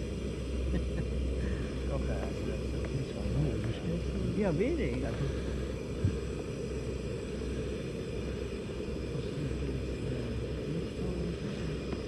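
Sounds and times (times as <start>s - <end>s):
low rumbling noise: 0.0s - 12.0s.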